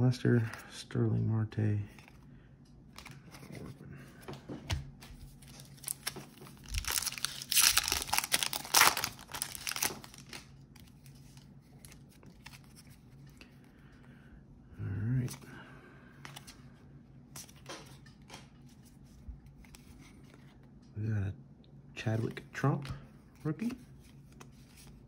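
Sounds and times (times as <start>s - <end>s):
wrapper crinkling and rustling: 5.3s - 12.9s
wrapper tearing: 5.5s - 10.5s.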